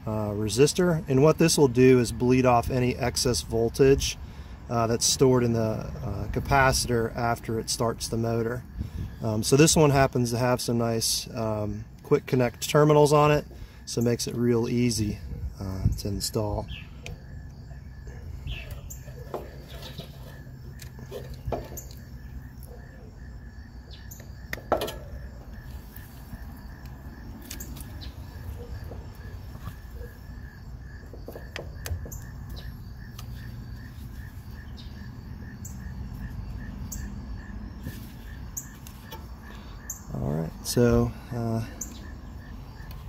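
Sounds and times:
insect pulsing chirp: 15.5 - 43.0.

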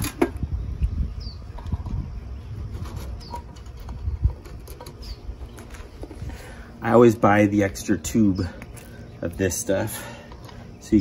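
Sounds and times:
small bird chirping: 0.4 - 6.1.

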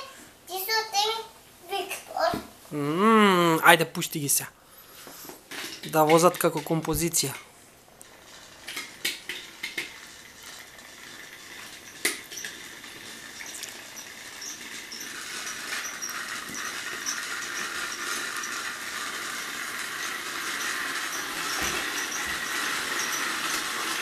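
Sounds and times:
toy train motors whirring: 5.5 - 24.0.

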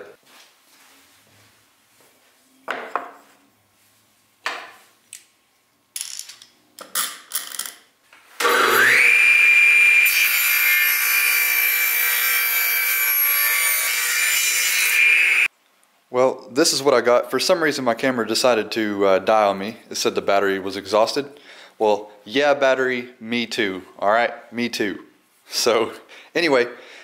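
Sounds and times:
table saw whining: 8.4 - 15.5.

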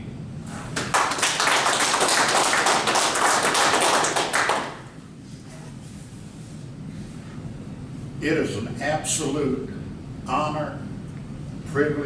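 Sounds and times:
people applauding: 0.8 - 4.9.

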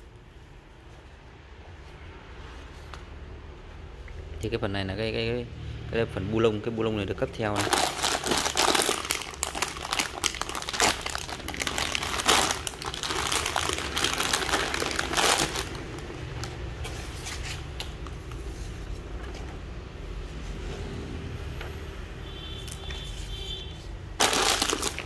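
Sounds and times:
plastic bag crinkling: 7.5 - 16.6, 24.2 - 25.0.

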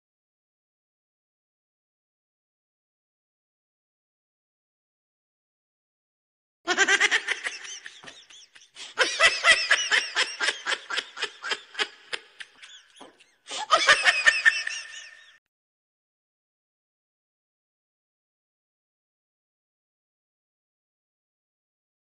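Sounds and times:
high-pitched laughing: 6.7 - 15.4.

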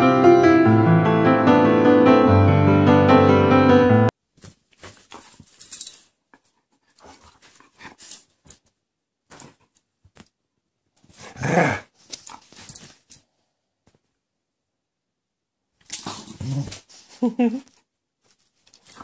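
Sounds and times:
dog growling in play: 11.2 - 12.0, 16.1 - 16.8.

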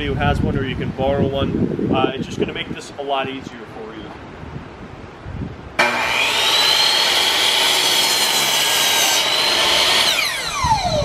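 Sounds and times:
miter saw cutting wood: 5.8 - 11.0.

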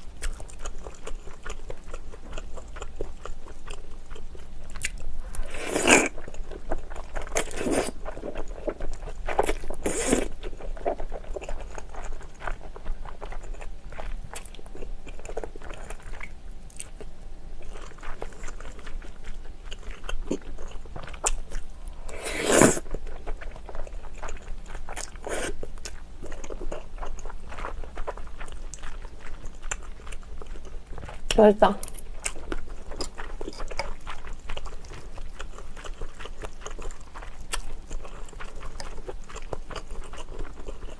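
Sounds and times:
chewing and wet mouth sounds: 0.0 - 40.9
noodles slurped: 22.1 - 22.9.

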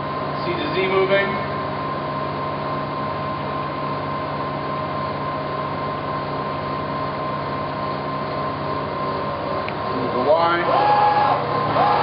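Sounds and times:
milling machine hum: 0.0 - 12.0
milling machine whine: 0.0 - 12.0.

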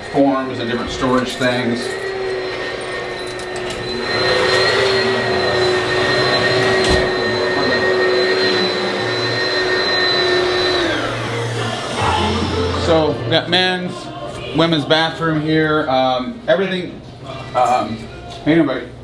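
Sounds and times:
electric motor whining: 0.9 - 13.3.

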